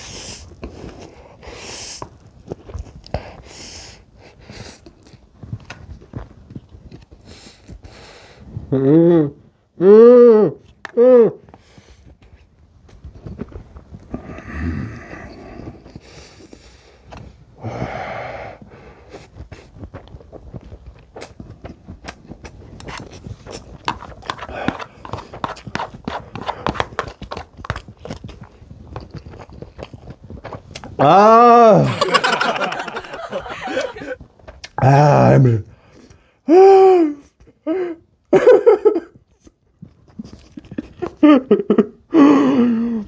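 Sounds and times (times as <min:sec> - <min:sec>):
person blowing out through lips: 0:08.7 - 0:11.5, 0:31.0 - 0:31.9, 0:36.4 - 0:38.0
wet chewing clicks: 0:20.8 - 0:30.9, 0:39.3 - 0:41.2.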